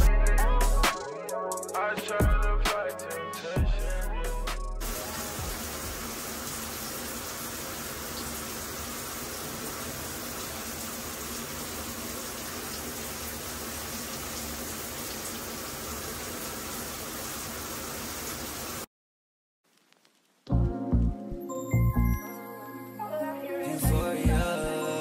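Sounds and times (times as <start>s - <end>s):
shower spray running: 4.8s - 18.9s.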